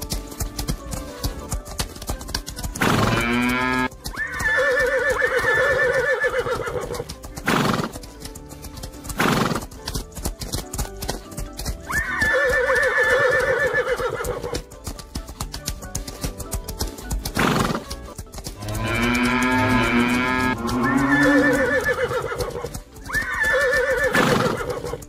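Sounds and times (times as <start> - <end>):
hoofbeats clattering: 0.0 - 25.0
horse whinnying: 2.8 - 7.9, 11.9 - 14.6, 18.6 - 25.0.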